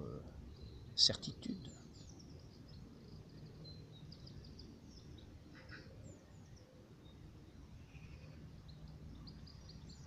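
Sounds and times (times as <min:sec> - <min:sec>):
faint birds chirping: 0:00.0 - 0:10.0.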